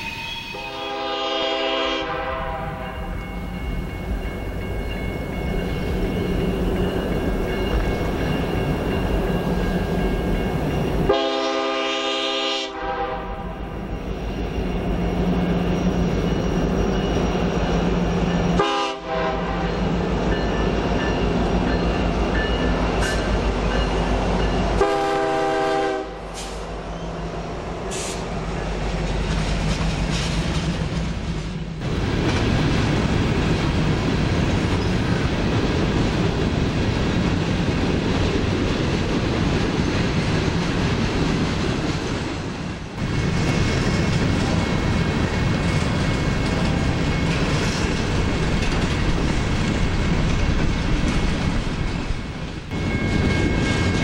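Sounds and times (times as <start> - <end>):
train air horn blasts: 0.0 - 3.2, 11.1 - 13.7, 18.6 - 19.8, 24.7 - 26.6
train wheels clacking on rails: 1.7 - 12.1, 13.8 - 26.7, 27.9 - 54.0.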